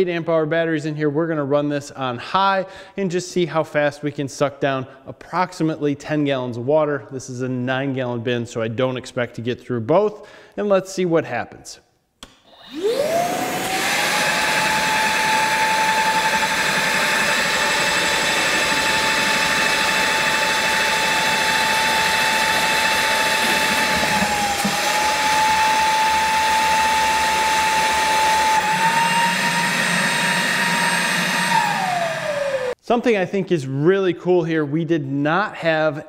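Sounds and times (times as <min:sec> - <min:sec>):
wet dry vac whining: 0:12.6 - 0:32.8.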